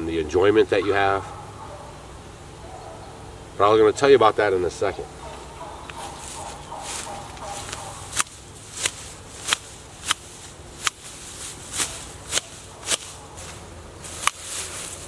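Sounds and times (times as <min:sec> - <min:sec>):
hand shears snipping grass: 0:05.8 - 0:15.0.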